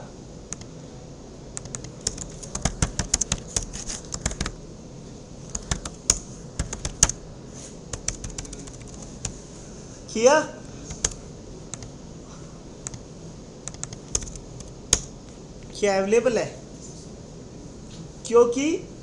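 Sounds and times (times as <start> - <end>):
computer keyboard key clicks: 1.6 - 4.6, 5.5 - 7.2, 13.7 - 15.1.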